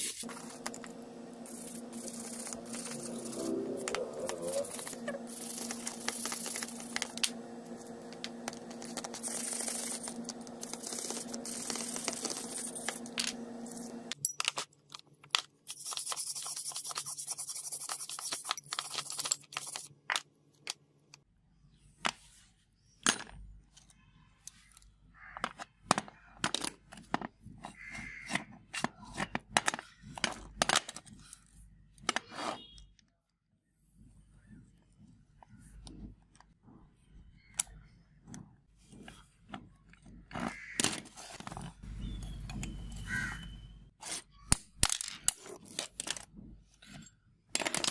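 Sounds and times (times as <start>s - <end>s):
stiff brush scrubbing metal: 0.0s - 13.9s
steady hum: 0.0s - 14.2s.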